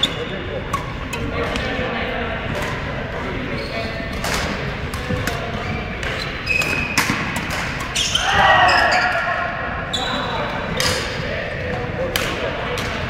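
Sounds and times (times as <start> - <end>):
rackets striking shuttlecock: 0.7 - 1.8, 4.1 - 8.0.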